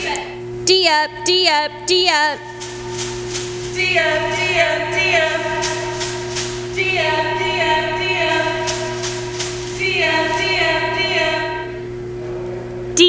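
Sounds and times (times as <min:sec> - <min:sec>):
cheerleaders chanting in unison: 0:03.8 - 0:06.0, 0:06.8 - 0:09.0, 0:09.8 - 0:11.7.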